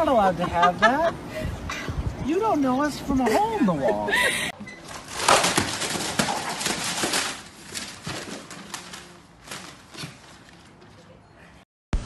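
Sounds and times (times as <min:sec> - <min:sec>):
paper crinkling and tearing: 0:04.9 - 0:10.8.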